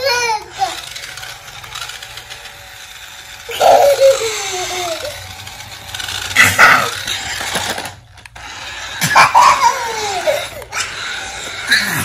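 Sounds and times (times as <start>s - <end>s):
toddler crying: 0.0s - 0.8s, 3.5s - 5.2s, 9.2s - 12.0s
toy clattering: 0.0s - 12.0s.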